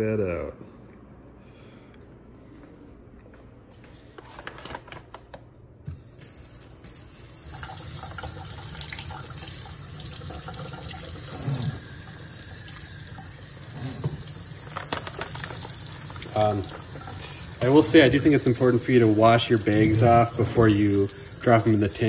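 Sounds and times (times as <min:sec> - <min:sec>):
faucet water splashing in sink: 0:06.0 - 0:22.0
plastic bag crinkling: 0:14.6 - 0:16.4.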